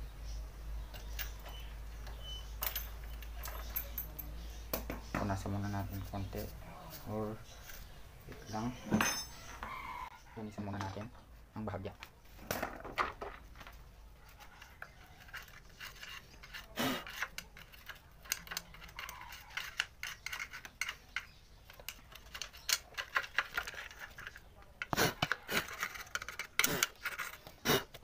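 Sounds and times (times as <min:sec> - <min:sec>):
screwdriver scraping metal: 0:14.3 - 0:28.0.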